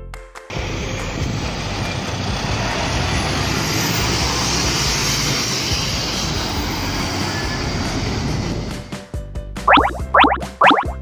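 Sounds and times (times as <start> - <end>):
traffic noise: 0.6 - 8.7.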